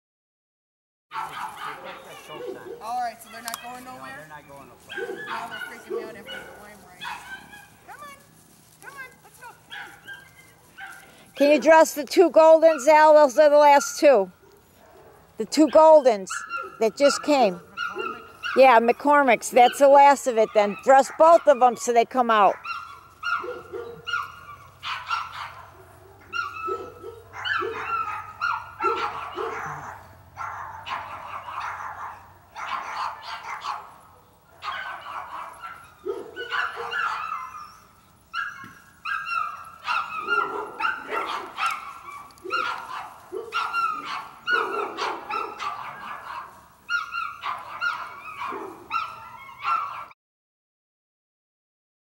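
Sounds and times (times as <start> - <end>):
dogs barking and yelping: 1.1 - 50.2.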